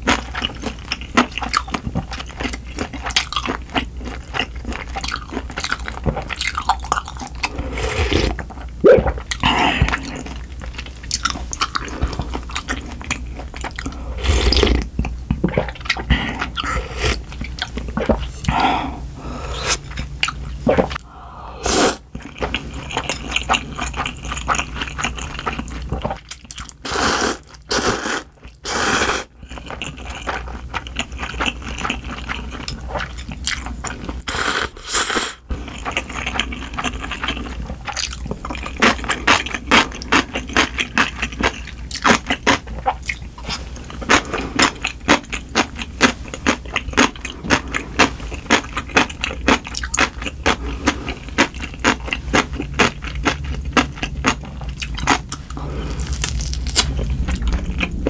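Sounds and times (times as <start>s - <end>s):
wet chewing and smacking: 0.0s - 7.6s, 8.3s - 18.6s, 22.0s - 26.8s, 29.4s - 34.3s, 35.6s - 58.0s
noodle slurping: 7.4s - 10.4s, 20.7s - 22.1s, 26.8s - 29.3s.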